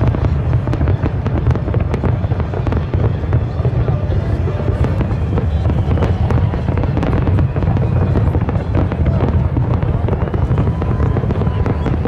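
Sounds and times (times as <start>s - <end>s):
fireworks booming: 0.0s - 12.0s
fireworks cracking and crackling: 0.0s - 12.0s.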